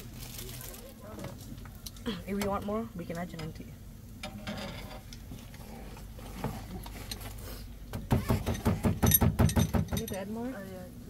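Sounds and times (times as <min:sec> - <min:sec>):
utensil beating against bowl: 0:08.0 - 0:10.2.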